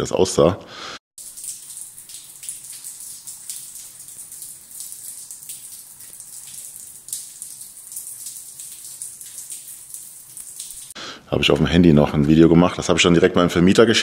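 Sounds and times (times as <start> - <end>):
water running and splashing on floor: 1.2 - 11.0.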